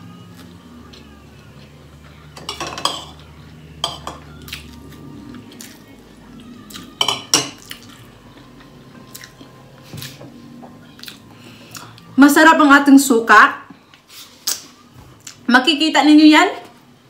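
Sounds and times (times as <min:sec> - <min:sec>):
metal spoon clinking on ceramic bowls: 0:02.4 - 0:03.2, 0:03.8 - 0:04.3, 0:07.0 - 0:07.7.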